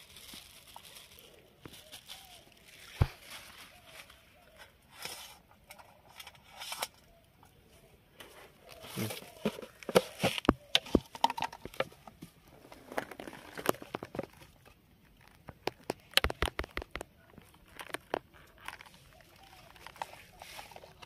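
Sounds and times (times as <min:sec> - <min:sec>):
plastic crinkling: 0:00.0 - 0:04.7, 0:08.8 - 0:21.0
sharp clicks and taps: 0:15.4 - 0:17.2.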